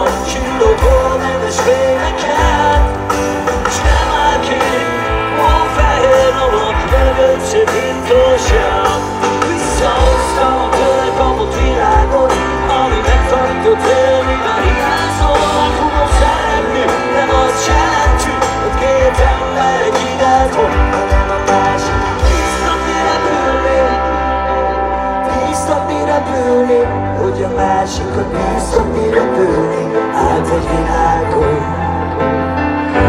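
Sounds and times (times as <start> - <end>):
live rock band: 0.0 - 33.0.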